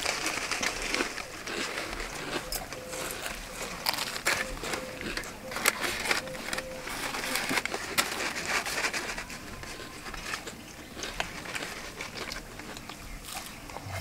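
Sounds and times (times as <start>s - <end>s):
fried batter crunching: 0.0s - 14.0s
paper packet crinkling: 0.0s - 14.0s.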